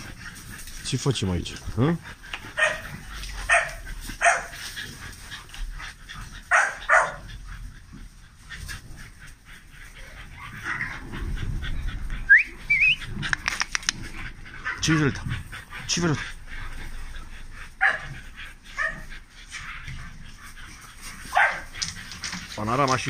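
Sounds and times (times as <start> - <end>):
dogs barking high-pitched: 2.4 - 4.7, 6.4 - 7.5, 17.7 - 19.1, 21.2 - 21.9
dog whining: 10.1 - 13.8.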